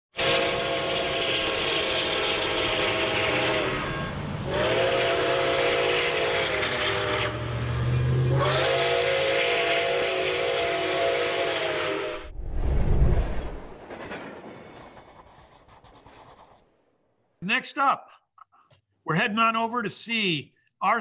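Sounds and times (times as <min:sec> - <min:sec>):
steam locomotive chime whistle: 0:00.2 - 0:12.2
steam hiss: 0:00.4 - 0:03.8
low rumble: 0:12.2 - 0:14.4.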